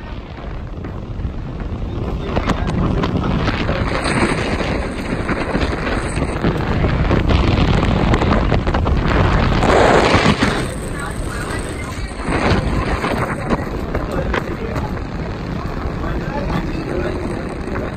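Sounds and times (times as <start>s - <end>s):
wind gusting across microphone: 0.0s - 17.9s.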